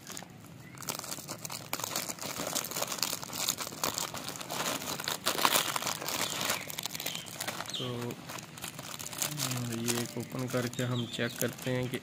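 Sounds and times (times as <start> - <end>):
snack packets crinkling: 0.0 - 12.0.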